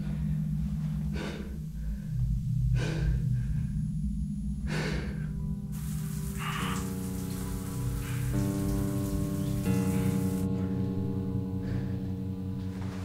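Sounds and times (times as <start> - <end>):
man breathing heavily: 0.0 - 12.4
low droning horror score: 0.0 - 13.0
rain hissing: 5.7 - 10.5.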